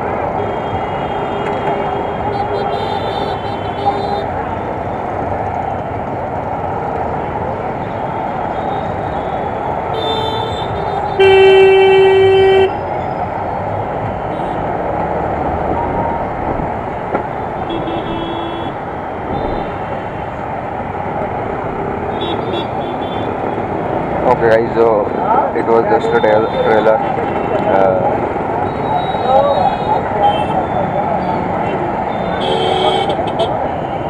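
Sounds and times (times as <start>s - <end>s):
wind and road noise: 0.0s - 34.0s
vehicle horns honking: 0.4s - 4.3s, 9.9s - 12.8s, 17.6s - 20.2s, 28.7s - 31.0s, 31.6s - 34.0s.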